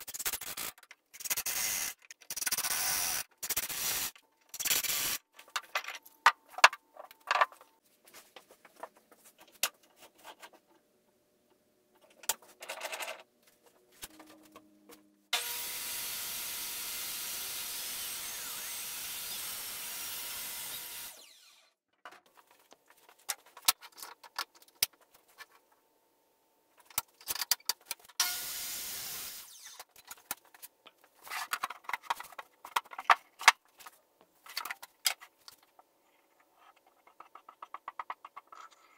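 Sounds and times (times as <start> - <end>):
power tool bursts: 28.2 - 29.8.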